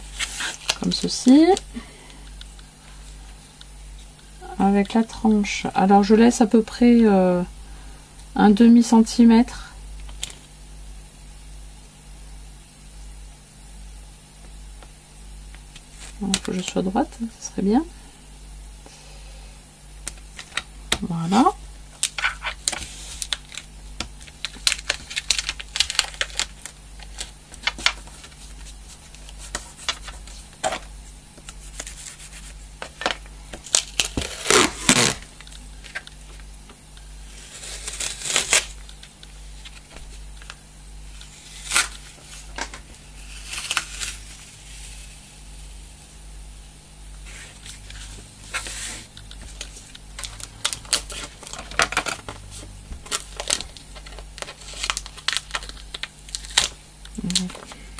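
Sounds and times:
packing tape ripping off roll: 22.0 - 28.4, 31.4 - 36.2, 37.4 - 39.8, 41.2 - 45.2, 47.3 - 57.8
hands pressing tape down: 33.5 - 35.2.

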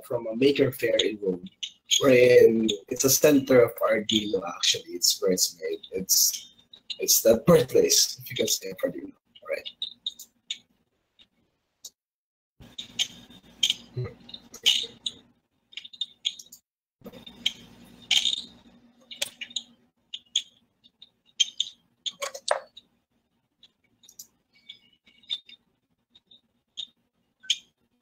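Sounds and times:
faint low hum: 0.0 - 10.3
mouse and keyboard clicking: 21.4 - 22.8.

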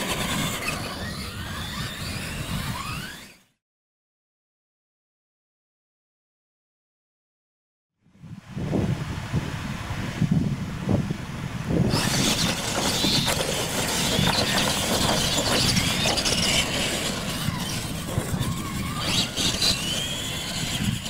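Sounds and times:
tyres rushing over dirt: 0.0 - 3.3, 11.8 - 21.0
electric motors whining: 0.0 - 3.5, 11.9 - 21.0.

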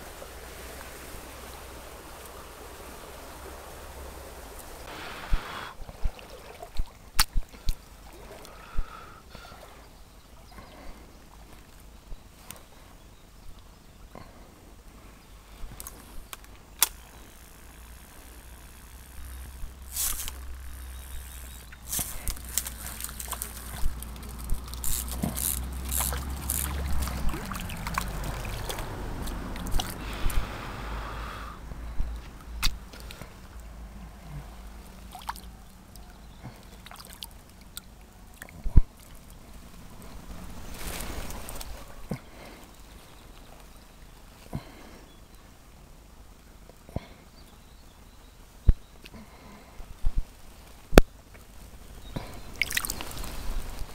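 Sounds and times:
reeds and brush rustling: 0.0 - 46.9, 48.0 - 53.9
faint stream trickling: 0.0 - 53.9
sharp crackles and clicks: 15.7 - 30.4, 38.5 - 43.8, 50.0 - 53.9
low microphone rumble: 38.6 - 43.4.

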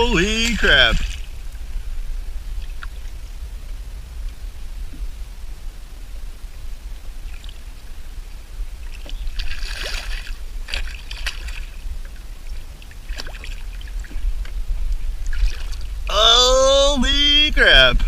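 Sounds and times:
steady low rumble: 0.0 - 18.0
fish thrashing and splashing water: 8.9 - 12.2, 12.9 - 14.2, 15.2 - 16.0.

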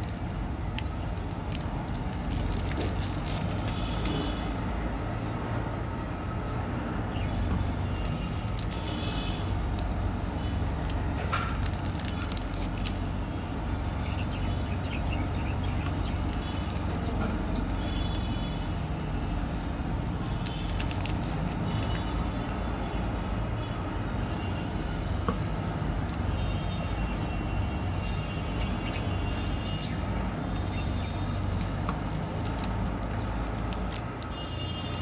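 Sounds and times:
plastic wrappers crinkling: 0.0 - 4.2, 7.8 - 10.0, 10.6 - 13.2, 16.3 - 18.3, 19.4 - 22.2, 30.2 - 35.0
road traffic rumble: 0.0 - 35.0.

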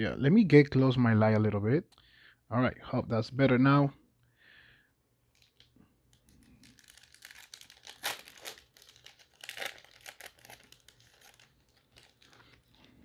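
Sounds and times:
foil wrapper tearing and crinkling: 6.3 - 13.0.

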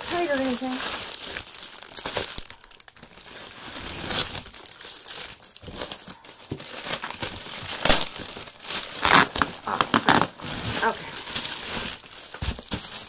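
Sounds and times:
plastic wrap crinkling: 0.0 - 13.0.

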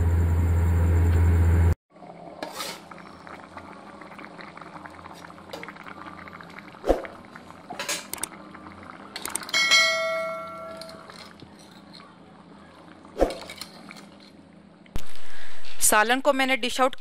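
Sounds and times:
broth bubbling in pot: 1.9 - 10.4.

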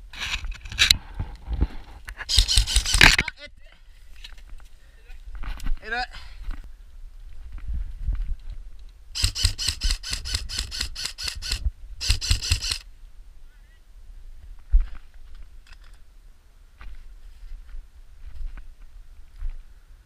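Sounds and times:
airsoft rifle firing: 2.3 - 3.2, 9.2 - 12.8.

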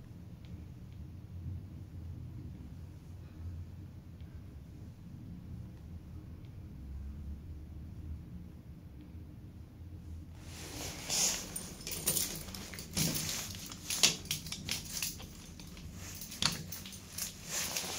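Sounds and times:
handling rustle: 10.4 - 17.9
keys jangling: 11.1 - 17.9.

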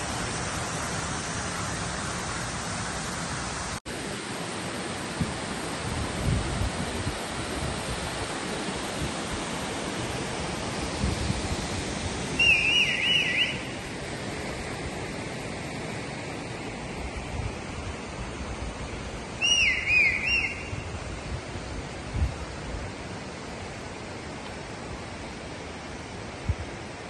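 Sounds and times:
water rushing over spillway: 0.0 - 27.0
bird chirping: 12.4 - 13.7, 19.4 - 20.8.

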